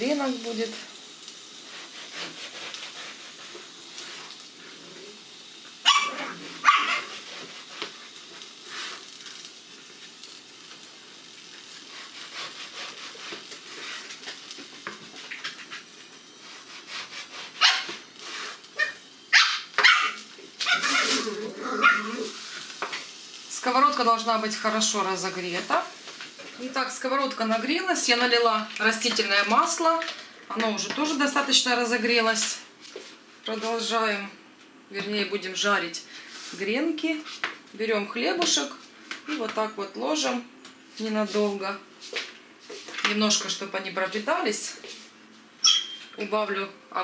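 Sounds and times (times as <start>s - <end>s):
knife sawing through bread: 1.7s - 3.5s, 11.9s - 14.0s, 16.4s - 17.7s
dog barking: 5.8s - 7.1s, 17.6s - 17.9s, 18.8s - 21.1s.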